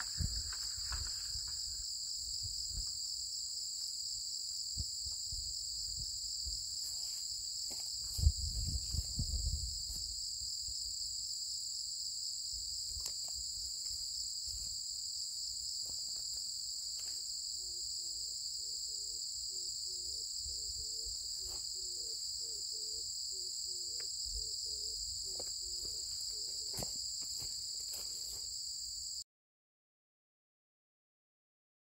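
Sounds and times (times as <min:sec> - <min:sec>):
insects trilling: 0:00.0 - 0:29.2.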